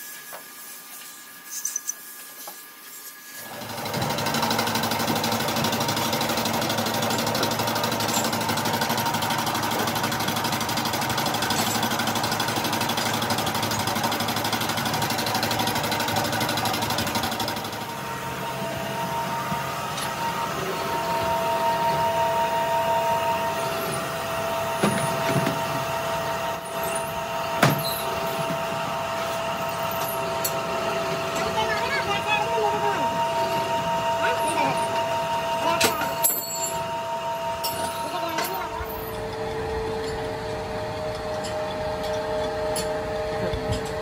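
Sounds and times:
steady machine whining tones: 0:00.0 - 0:44.0
steady machine noise: 0:03.3 - 0:44.0
dense rapid machine clatter: 0:03.6 - 0:17.8.

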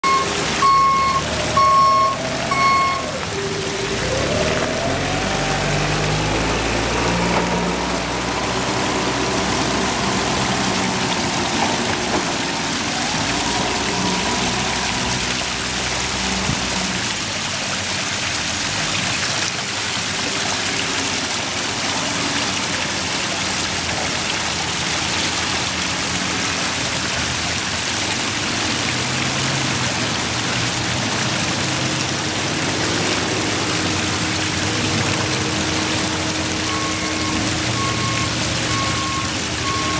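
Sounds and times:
waterfall splashing into pond: 0:00.0 - 0:39.9.

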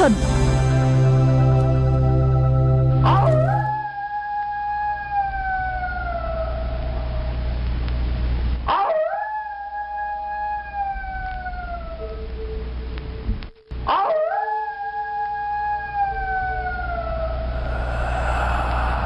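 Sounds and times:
steady low hum: 0:17.4 - 0:19.0.

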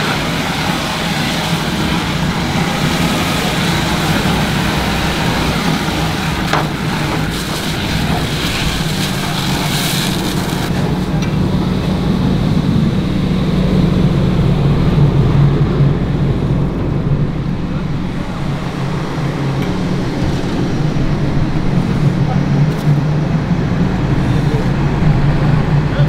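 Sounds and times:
hose stream hissing: 0:00.0 - 0:14.2
diesel engine humming: 0:00.0 - 0:26.0.

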